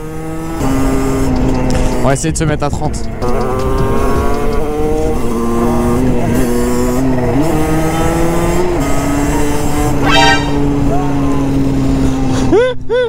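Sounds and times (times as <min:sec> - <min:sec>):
two-stroke motorcycle engine running: 0:00.0 - 0:09.3.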